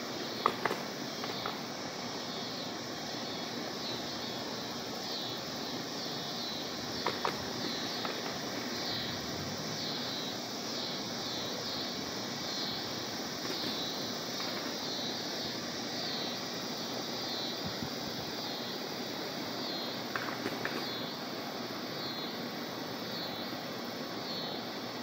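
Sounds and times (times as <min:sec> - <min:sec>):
insects chorus pulsing: 0:00.0 - 0:25.0.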